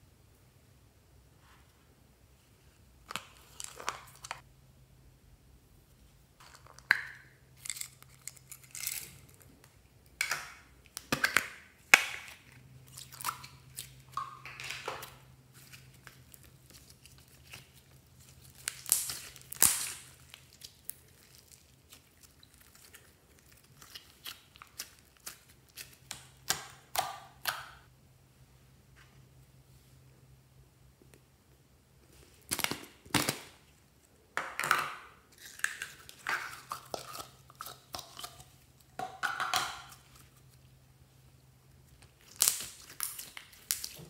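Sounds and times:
slime squelching: 6.4s - 27.9s, 35.3s - 40.7s, 41.8s - 44.0s.

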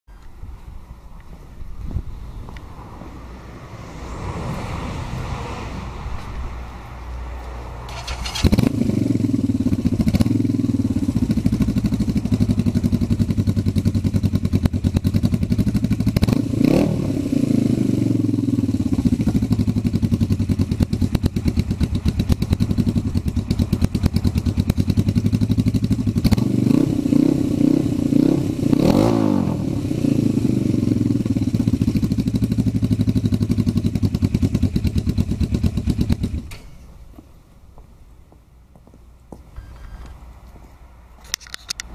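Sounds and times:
wind noise on microphone: 0.4s - 3.3s
motorcycle engine idling and revving: 5.9s - 37.4s.

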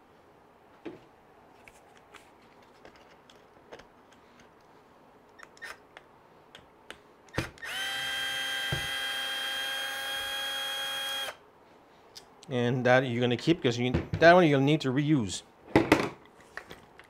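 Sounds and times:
cordless drill running: 7.6s - 11.4s.

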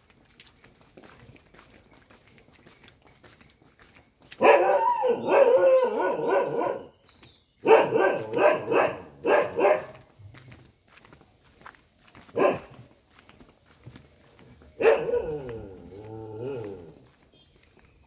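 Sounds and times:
dog barking: 4.4s - 6.9s, 7.6s - 10.1s, 12.3s - 12.9s, 14.8s - 17.0s.

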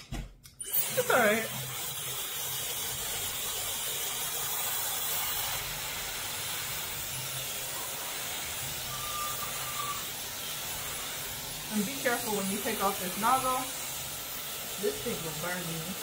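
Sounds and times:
hair dryer blowing: 0.6s - 16.0s.

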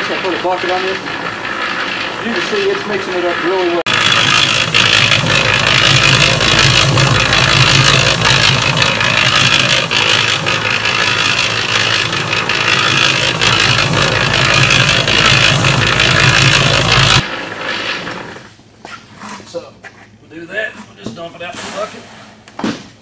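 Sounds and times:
dry granular mix tumbling: 0.0s - 18.4s
concrete mixer running: 0.0s - 18.6s.

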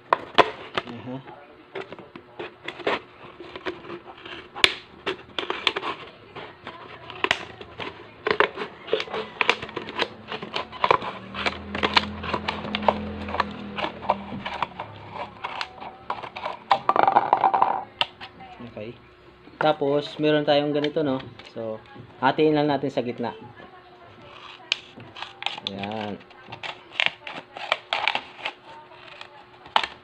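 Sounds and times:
plastic crackling and crinkling: 0.1s - 18.5s, 23.1s - 30.0s
scissors snipping plastic: 1.8s - 16.9s, 24.2s - 30.0s.

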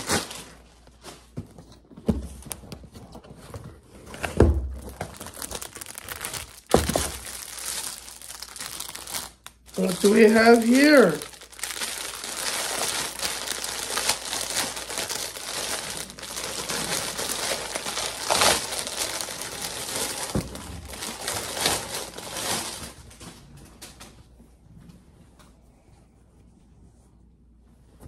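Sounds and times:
plastic packaging crinkling: 4.6s - 24.0s.

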